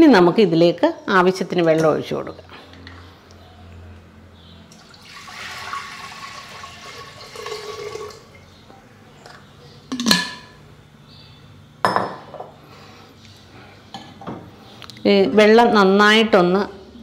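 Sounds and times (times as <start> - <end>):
water pouring into clay pot: 4.7 - 8.4.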